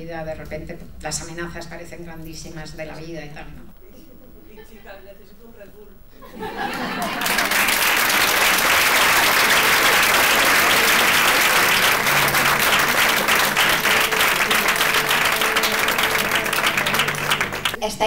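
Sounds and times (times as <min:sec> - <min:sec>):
audience applauding: 0:06.8 - 0:17.8
faint musical tones: 0:09.1 - 0:18.0.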